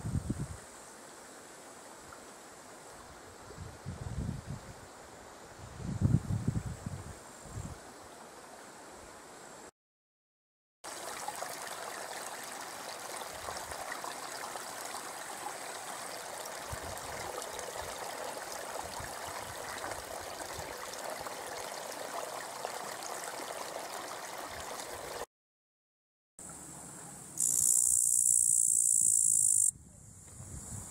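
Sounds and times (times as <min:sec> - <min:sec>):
brook trickling over stones: 0:10.8 - 0:25.3.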